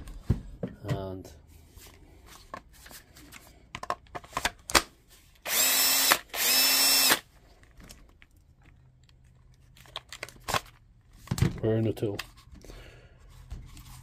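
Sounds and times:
power tool motor whining: 0:05.4 - 0:07.2.

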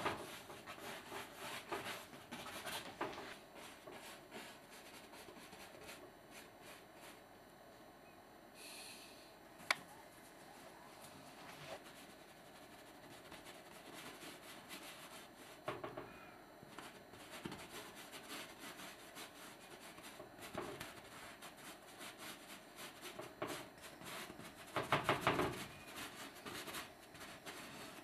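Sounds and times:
paintbrush strokes on canvas: 0:00.0 - 0:07.2, 0:10.1 - 0:15.7, 0:16.7 - 0:28.0.

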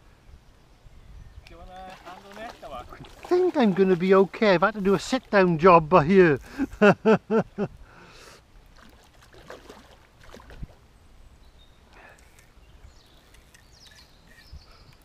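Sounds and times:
small clicks: 0:11.9 - 0:12.5, 0:13.2 - 0:15.0.

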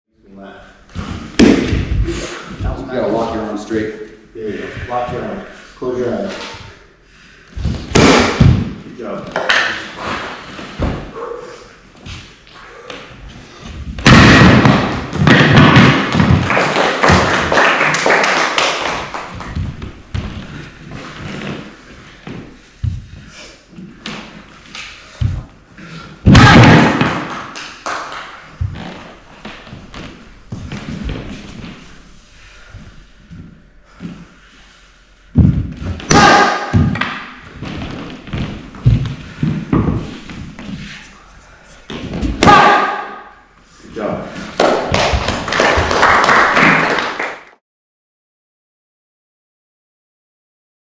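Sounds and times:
heavy thump: 0:07.6 - 0:08.8, 0:35.3 - 0:40.1
knocks and thuds: 0:07.6 - 0:08.8, 0:35.4 - 0:40.1.

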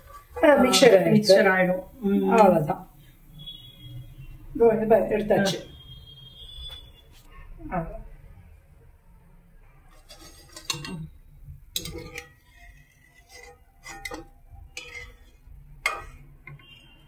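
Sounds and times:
metal ladle clinking on steel bowl: 0:09.9 - 0:17.0.

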